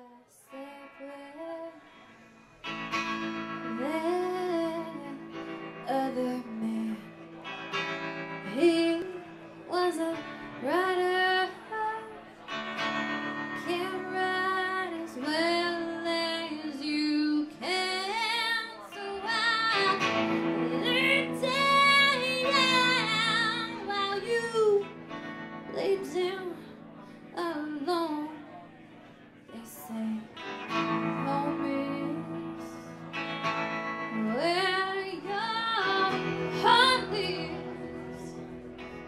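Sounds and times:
guitar accompaniment: 0:00.0 - 0:39.0
woman singing with vibrato: 0:03.6 - 0:07.0, 0:08.4 - 0:12.2, 0:13.6 - 0:24.9, 0:25.7 - 0:26.7, 0:29.6 - 0:30.3, 0:30.9 - 0:32.9, 0:34.1 - 0:38.4.

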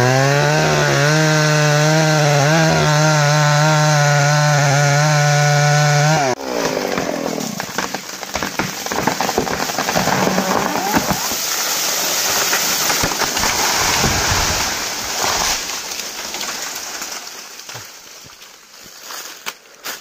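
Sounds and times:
branches snapping: 0:00.0 - 0:20.0
leaves rustling: 0:06.4 - 0:20.0
tree falling through brush: 0:06.4 - 0:20.0.

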